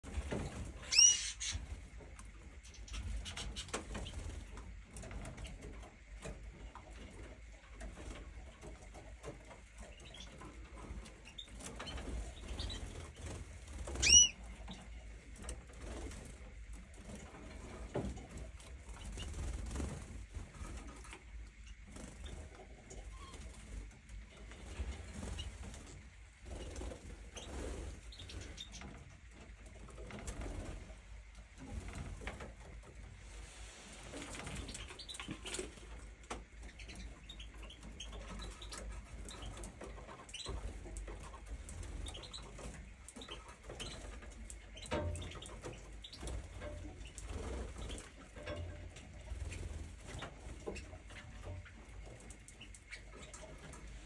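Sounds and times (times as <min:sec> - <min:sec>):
canary wing flutters: 0:00.0 - 0:54.0
faint canary chirps: 0:00.2 - 0:04.4, 0:09.8 - 0:16.2, 0:24.3 - 0:29.1, 0:34.1 - 0:53.9
loud canary call notes: 0:00.8 - 0:01.6, 0:13.9 - 0:14.4.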